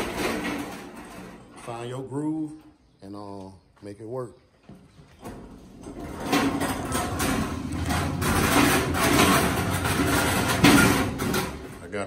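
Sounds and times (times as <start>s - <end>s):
hand truck rattling over floor: 0.0s - 2.1s, 5.2s - 12.0s.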